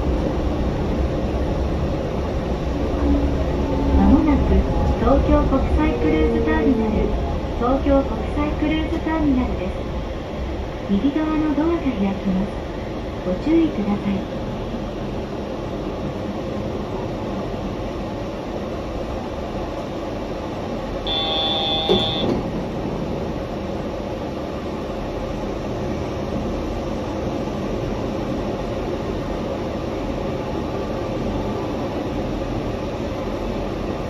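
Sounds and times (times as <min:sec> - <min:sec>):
train running: 0:00.0 - 0:34.0
brief high-pitched tone: 0:21.1 - 0:22.4.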